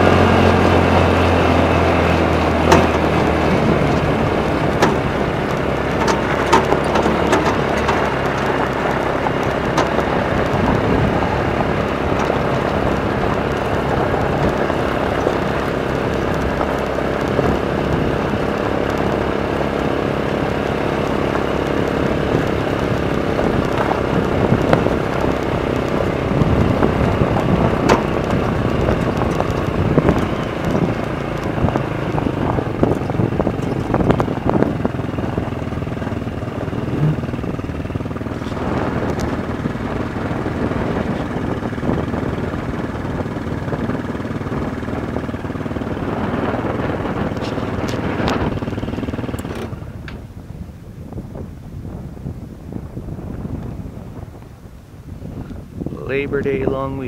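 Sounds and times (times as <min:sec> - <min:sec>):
knocks and rattles over ground: 0:00.0 - 0:50.4
go-kart engine running: 0:00.0 - 0:57.0.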